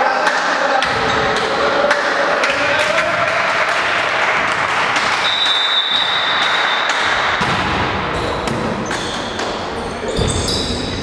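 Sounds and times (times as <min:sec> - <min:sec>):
crowd clapping and cheering: 0:01.3 - 0:07.4
high whistle: 0:05.2 - 0:07.2.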